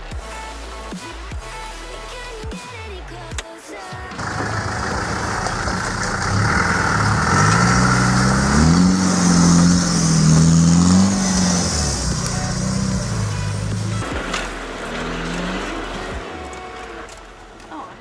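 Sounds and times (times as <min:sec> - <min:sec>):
engine revving: 0:04.1 - 0:17.7.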